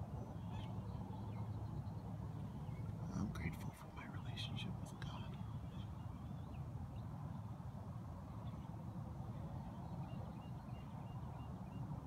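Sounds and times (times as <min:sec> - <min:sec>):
low steady rumble: 0:00.0 - 0:12.0
faint bird calls: 0:00.2 - 0:07.1.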